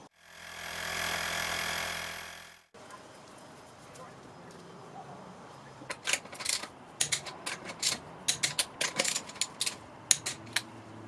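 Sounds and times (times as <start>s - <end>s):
ratchet wrench clicking: 5.9s - 10.7s.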